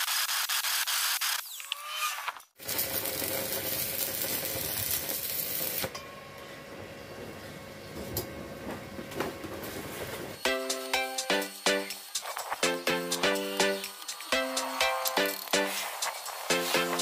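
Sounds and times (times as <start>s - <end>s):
welding arc crackling and sizzling: 2.6s - 5.9s, 10.4s - 17.0s.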